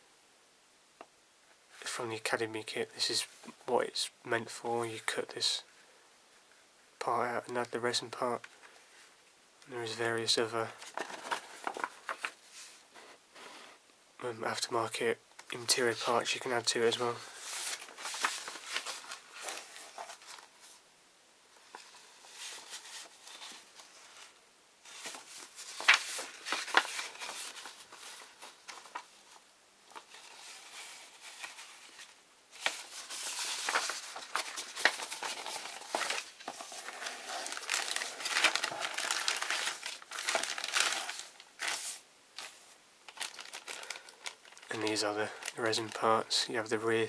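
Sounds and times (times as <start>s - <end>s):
paper leaflets rustling: 10.4s - 12.8s, 15.6s - 20.8s, 21.6s - 46.4s
plastic bags crinkling: 24.9s - 46.2s.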